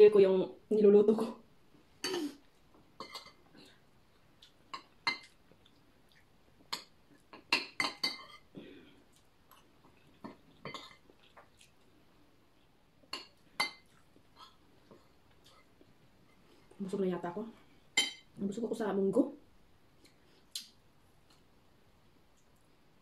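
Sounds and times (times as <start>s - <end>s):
cutlery clinking on dishes: 6.8s - 8.5s.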